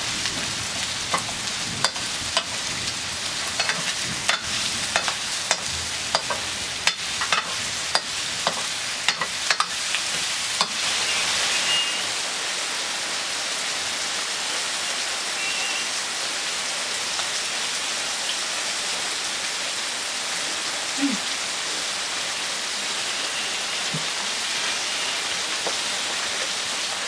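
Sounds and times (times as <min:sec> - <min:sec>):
food sizzling in wok: 0:00.0 - 0:27.0
ladle scraping metal wok: 0:03.6 - 0:11.0.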